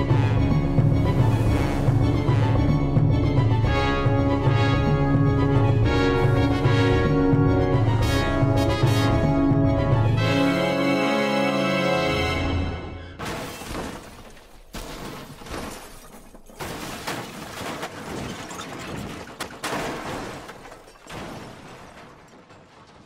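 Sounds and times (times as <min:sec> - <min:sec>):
orchestral music: 0:00.0 - 0:13.2
glass shattering: 0:13.2 - 0:14.6, 0:15.4 - 0:22.6
metal crunching: 0:13.2 - 0:23.0.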